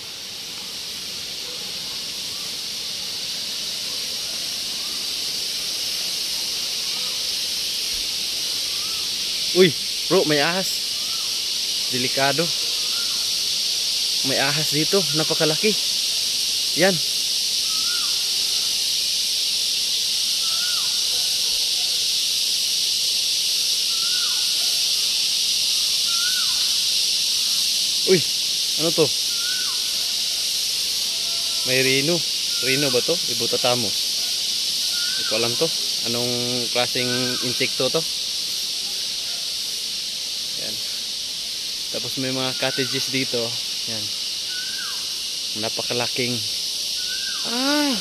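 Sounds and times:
faint chirps: 0:00.0 - 0:19.0, 0:20.1 - 0:22.1, 0:23.7 - 0:48.0
high-pitched insect drone: 0:00.0 - 0:48.0
bird call: 0:08.6 - 0:09.2, 0:17.6 - 0:18.7, 0:20.4 - 0:21.4, 0:23.9 - 0:24.8, 0:26.0 - 0:26.8, 0:29.3 - 0:30.4, 0:34.2 - 0:35.6, 0:37.0 - 0:37.6, 0:44.5 - 0:45.1.

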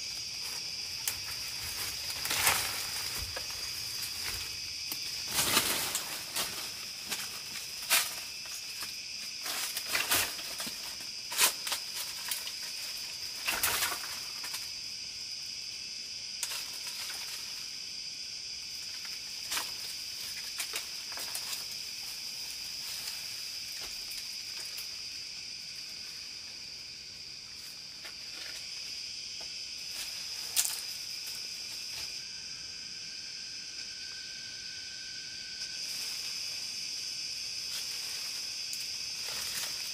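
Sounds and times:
crackling rustles and knocks: 0:00.0 - 0:14.7, 0:16.4 - 0:17.7, 0:18.8 - 0:25.0, 0:27.6 - 0:32.2, 0:37.6 - 0:39.9
high-pitched insect drone: 0:00.0 - 0:39.9.

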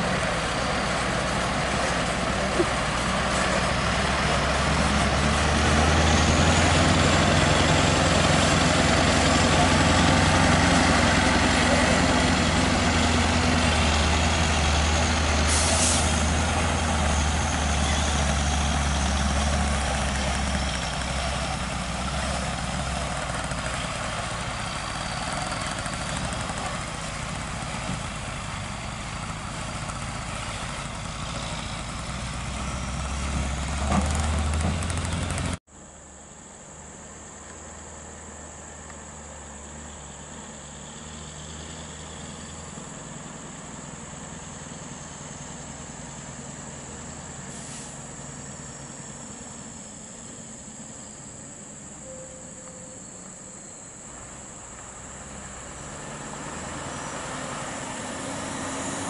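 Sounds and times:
truck diesel engine under load: 0:00.0 - 0:59.0
brief air hiss: 0:15.5 - 0:16.2, 0:47.5 - 0:48.1.

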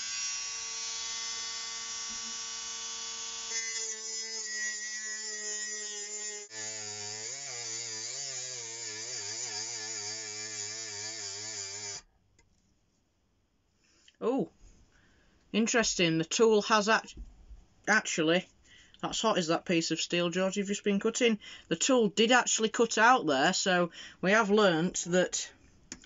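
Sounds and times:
rotary tool grinding steel: 0:00.0 - 0:12.1.

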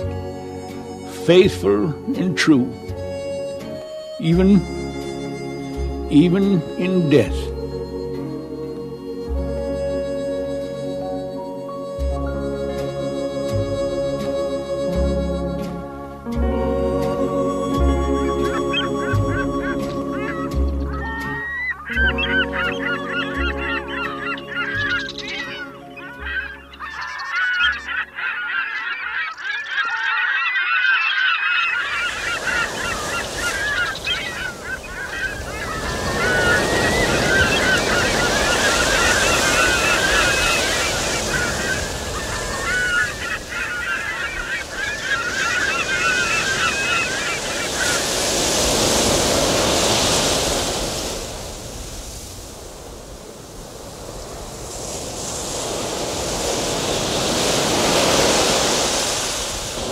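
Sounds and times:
wind: 0:00.0 - 0:01.2, 0:01.9 - 0:59.9
surf: 0:11.9 - 0:27.0, 0:31.6 - 0:59.9
flock of birds squawking: 0:18.0 - 0:52.4, 0:53.8 - 0:59.9.

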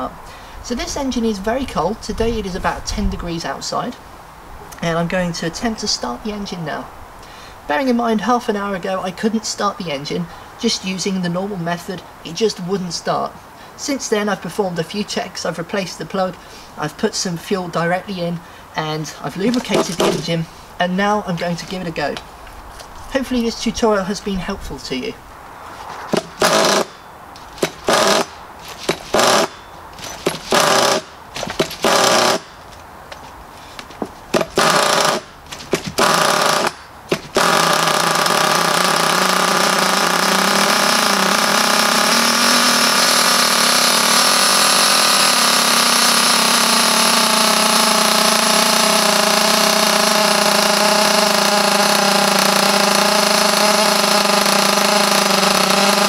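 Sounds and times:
recoil starter pulls: 0:19.3 - 0:20.4, 0:26.1 - 0:32.8, 0:34.3 - 0:56.0
small nitro engine idling: 0:26.1 - 0:32.6, 0:34.4 - 0:56.0.

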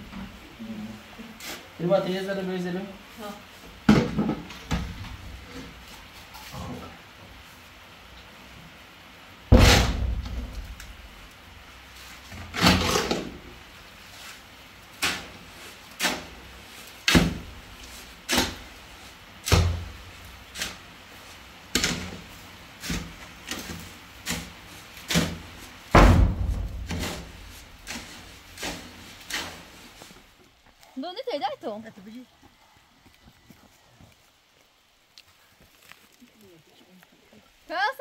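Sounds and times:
shovel thudding on wheelbarrow: 0:09.5 - 0:10.7, 0:25.1 - 0:29.7
shovel scraping wet cement: 0:12.1 - 0:13.4, 0:14.1 - 0:26.0, 0:26.6 - 0:30.2.

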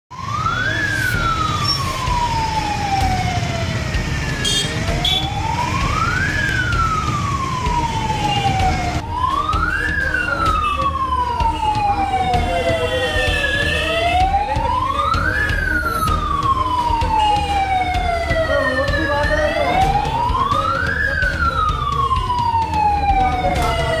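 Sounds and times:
electronic alarm siren wailing: 0:00.2 - 0:24.0.

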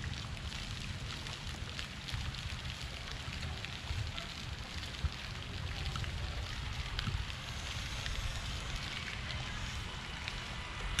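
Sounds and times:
wind buffeting microphone: 0:03.8 - 0:11.0
steady hiss: 0:05.4 - 0:11.0.

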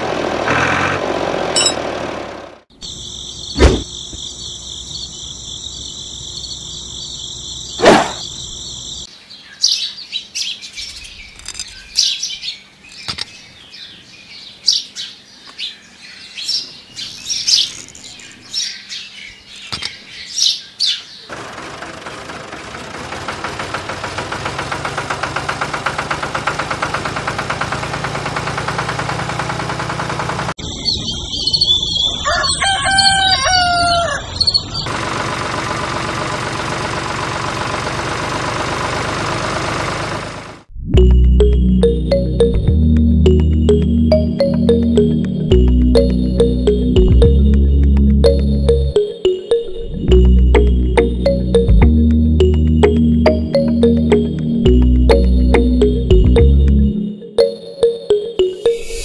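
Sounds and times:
birds chirping: 0:02.8 - 0:21.3, 0:30.6 - 0:34.9
steady high-pitched tone: 0:41.0 - 0:59.0.

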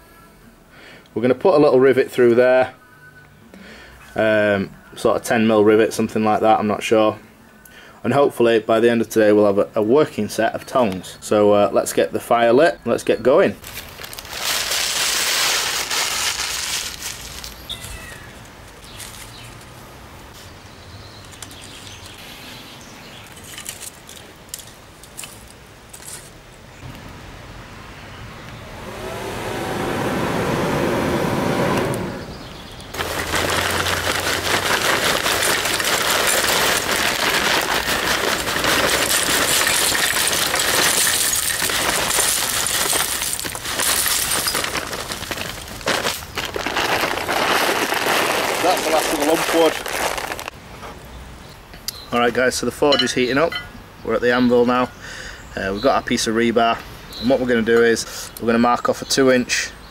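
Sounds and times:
kindling crackling: 0:13.6 - 0:19.7, 0:28.4 - 0:50.6
blower motor whine: 0:28.4 - 0:32.5.

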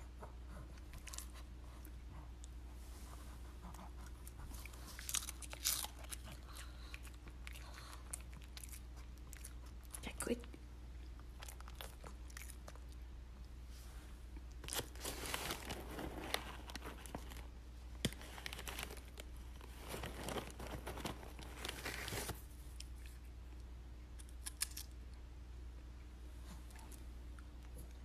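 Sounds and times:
plastic bag crinkling: 0:14.6 - 0:22.5.

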